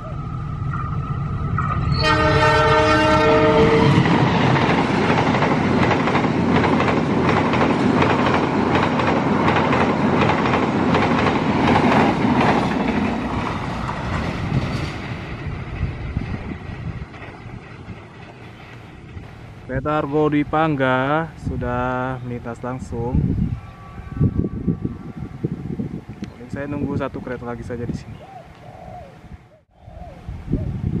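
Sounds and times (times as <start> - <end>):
train horn: 1.9 - 4.1, 23.5 - 25.4
train wheels clickety-clack: 3.9 - 19.4.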